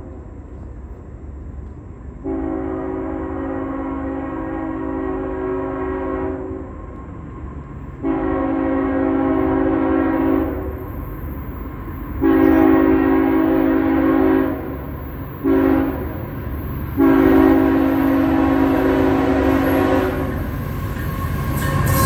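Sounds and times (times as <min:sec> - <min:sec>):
train rumble: 0:00.0 - 0:22.0
locomotive air horn blasts: 0:02.2 - 0:06.7, 0:08.0 - 0:10.6, 0:12.2 - 0:14.8, 0:15.4 - 0:20.5.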